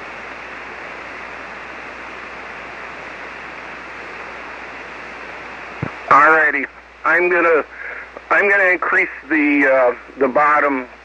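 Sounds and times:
radio receiver band noise hiss: 0.0s - 11.0s.

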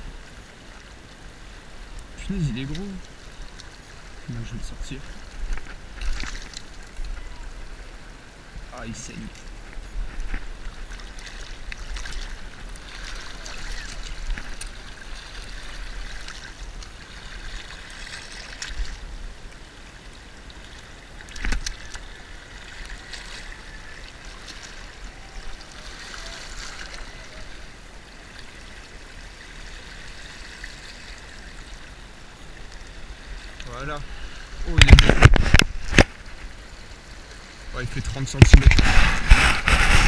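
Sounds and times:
water lapping over rocks: 0.0s - 40.0s
small clicks and rustles: 5.0s - 7.3s, 9.3s - 14.9s, 21.2s - 22.1s.

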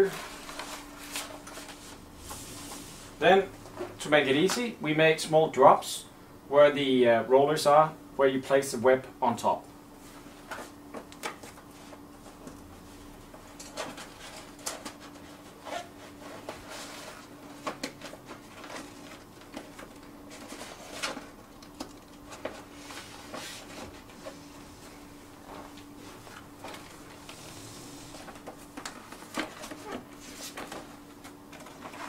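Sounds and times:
paper rustling and crinkling: 0.0s - 2.9s, 13.4s - 32.0s
faint steady hum: 0.0s - 32.0s.

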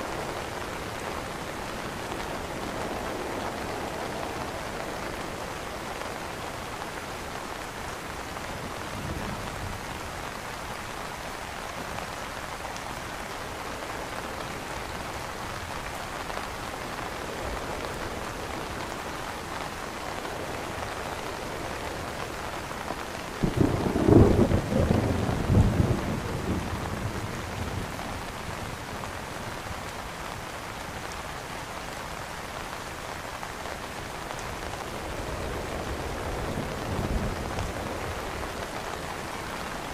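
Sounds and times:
rain pattering on an umbrella: 0.0s - 39.9s
thunder rumbling: 23.4s - 28.3s.

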